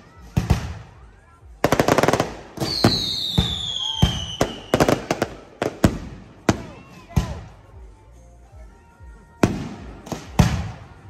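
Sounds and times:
fireworks crackling: 0.0 - 8.0, 9.4 - 11.0
firework shell bursts: 1.7 - 6.8
falling firework whistle: 2.6 - 5.1.

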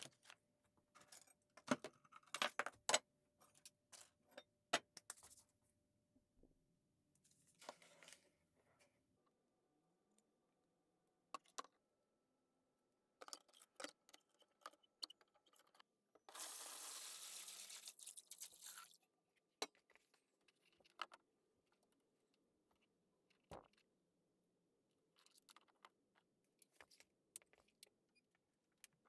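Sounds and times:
water pouring into plastic tub: 16.3 - 19.0.

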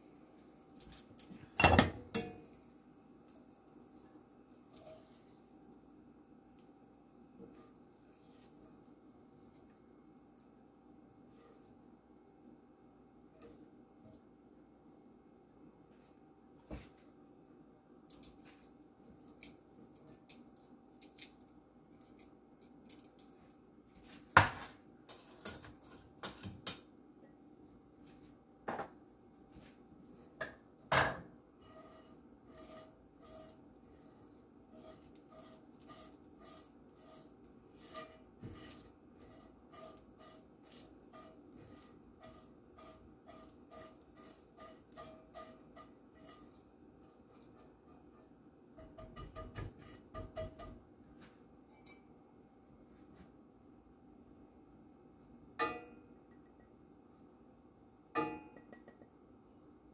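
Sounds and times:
tongs scraping a skillet: 0.8 - 5.6, 7.4 - 9.7, 18.1 - 24.3, 25.1 - 26.4, 31.5 - 50.8
basting brush strokes on skillet: 0.8 - 14.2, 23.0 - 26.2, 31.4 - 51.3.

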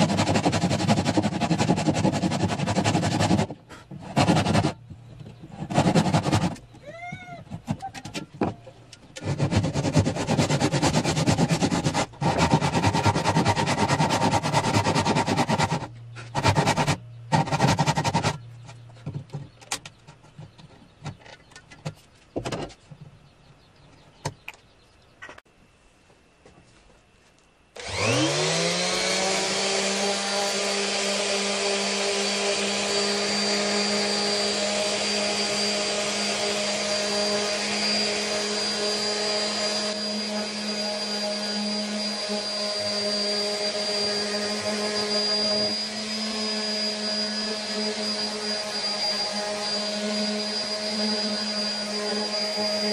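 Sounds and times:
power saw cutting wood: 0.0 - 4.8, 5.5 - 6.7, 9.2 - 18.7, 27.8 - 52.9
orbital sander whining: 27.8 - 52.9.

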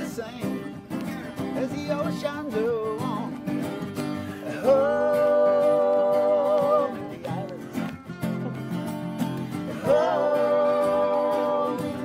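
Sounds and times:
acoustic guitars strumming: 0.0 - 12.0.

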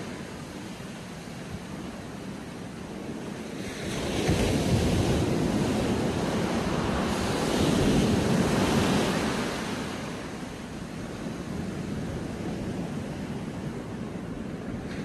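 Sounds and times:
ocean surf breaking: 0.0 - 10.9.

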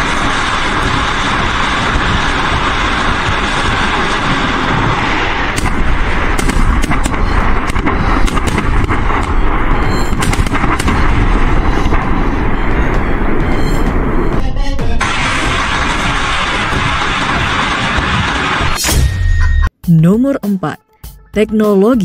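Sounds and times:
sharp cracks and bangs: 0.0 - 14.3, 15.0 - 19.3.

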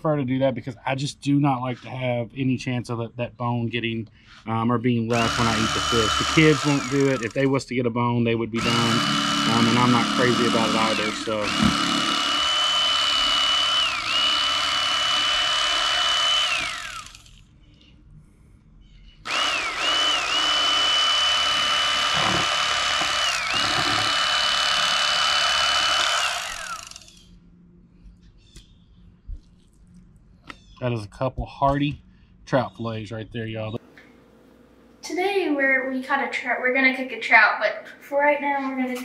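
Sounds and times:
electric knife motor whine: 5.1 - 7.5, 8.6 - 17.4, 19.3 - 27.4.

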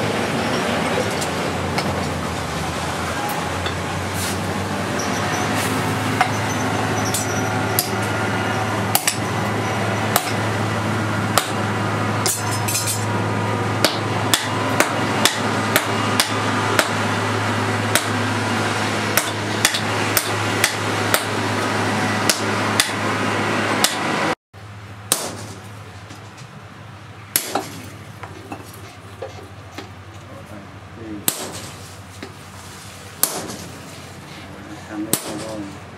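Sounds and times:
hammer striking hot steel: 6.2 - 8.2, 8.9 - 9.3, 10.0 - 10.5, 11.3 - 13.2, 13.8 - 17.2, 17.9 - 18.2, 19.0 - 23.1, 23.8 - 24.2, 25.1 - 25.7, 27.3 - 27.9, 31.2 - 31.8, 33.2 - 33.8, 35.1 - 35.6.

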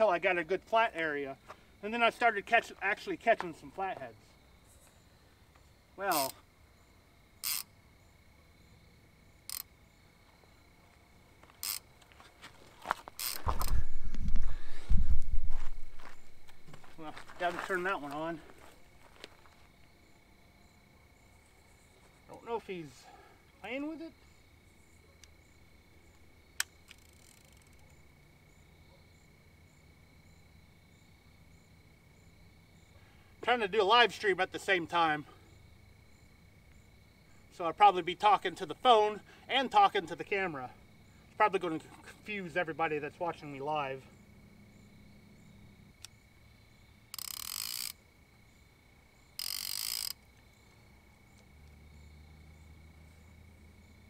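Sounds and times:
night insects chirping: 0.0 - 54.0
fishing reel clicker rasping: 7.4 - 7.7, 9.5 - 9.7, 11.6 - 11.8, 13.2 - 13.8, 26.6 - 27.8, 47.1 - 48.0, 49.4 - 50.2.

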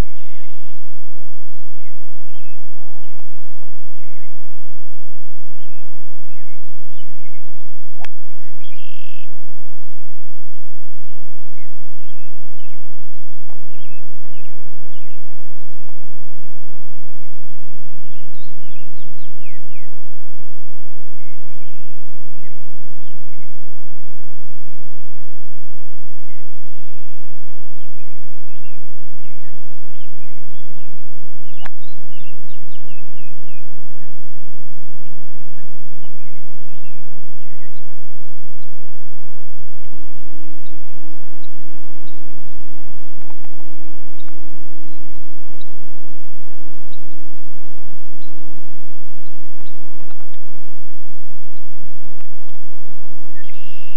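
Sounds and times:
birds chirping: 0.0 - 0.9, 1.5 - 9.6, 11.0 - 15.6, 17.2 - 20.1, 21.1 - 24.2, 26.1 - 34.2, 35.5 - 39.4, 40.1 - 48.4, 49.1 - 51.8, 53.2 - 53.9
loud steady low hum: 0.0 - 53.9.

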